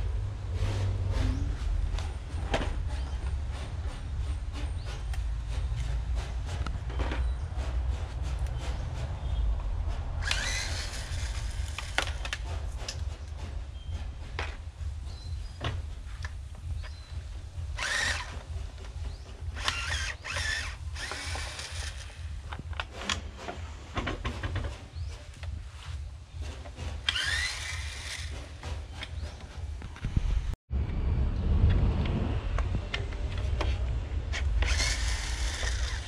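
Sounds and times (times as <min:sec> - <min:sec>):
low rumble: 0:00.0 - 0:19.4, 0:29.8 - 0:36.0
power drill whining: 0:10.2 - 0:12.1, 0:17.8 - 0:18.5, 0:19.5 - 0:22.4, 0:27.0 - 0:29.2, 0:34.3 - 0:36.0.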